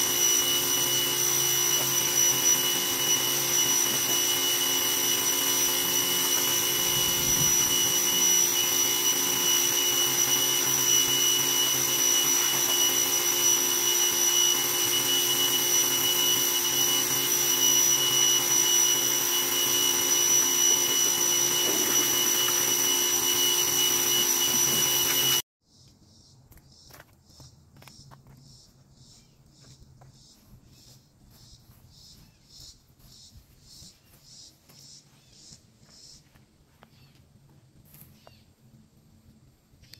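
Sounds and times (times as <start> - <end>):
pressure washer whine: 0.0 - 25.5.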